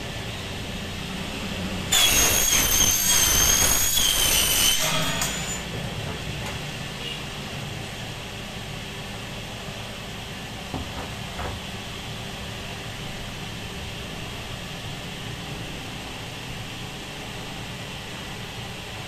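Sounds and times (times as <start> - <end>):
power saw cutting metal: 1.9 - 5.7.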